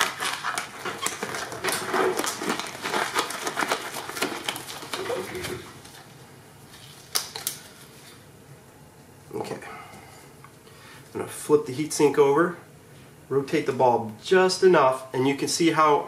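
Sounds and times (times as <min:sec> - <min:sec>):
glove crackling and rustling: 0:00.0 - 0:08.2.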